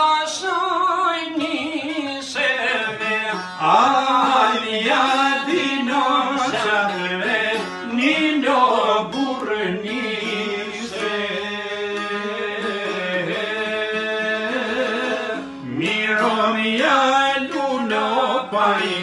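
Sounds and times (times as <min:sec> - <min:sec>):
man singing folk melody: 0:00.0 - 0:19.0
instrumental accompaniment: 0:00.8 - 0:19.0.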